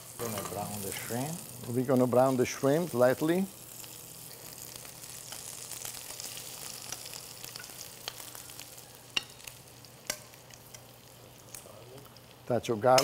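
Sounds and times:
shrimp sizzling in pan: 0:00.0 - 0:13.0
metal tongs clicking on pan: 0:07.5 - 0:08.3, 0:09.2 - 0:10.9.

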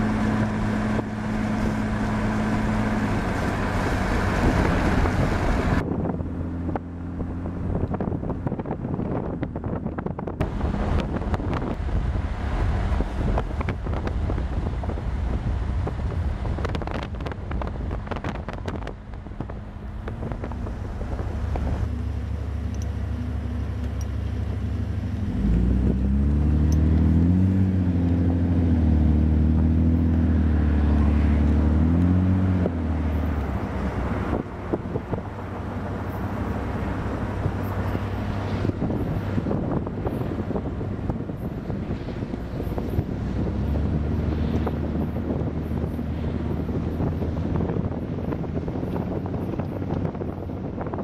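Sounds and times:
heavy engine humming: 0:00.0 - 0:51.0
wind buffeting microphone: 0:00.0 - 0:51.0.

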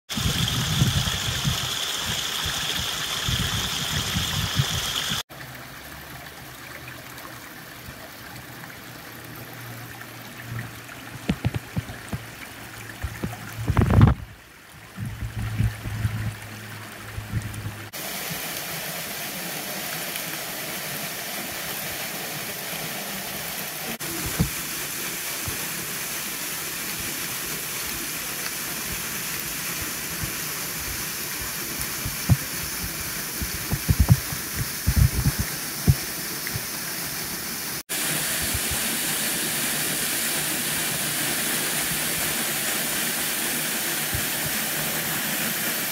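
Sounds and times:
waterfall rushing: 0:00.1 - 0:05.3, 0:17.9 - 0:45.9
stream splashing over leaves: 0:00.1 - 0:45.9.

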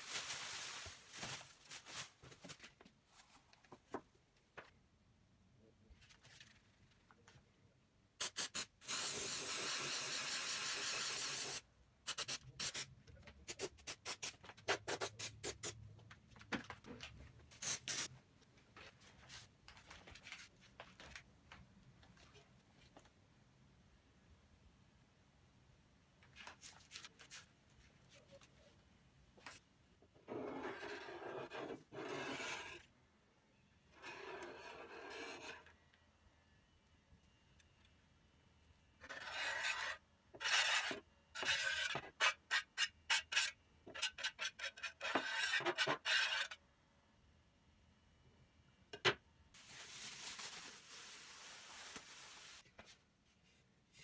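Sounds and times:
aerosol can spraying: 0:08.2 - 0:12.8.

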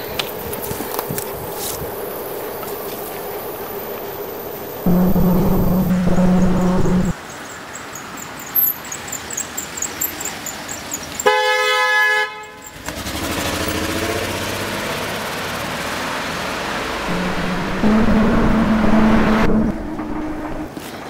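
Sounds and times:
car engine pulling away: 0:04.8 - 0:07.2, 0:12.8 - 0:20.7
car horn honk: 0:04.9 - 0:07.1, 0:17.1 - 0:20.7.

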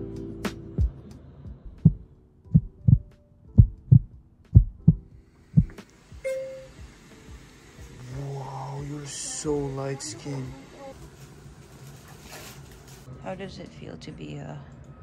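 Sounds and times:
heartbeat thumps: 0:00.8 - 0:07.4.

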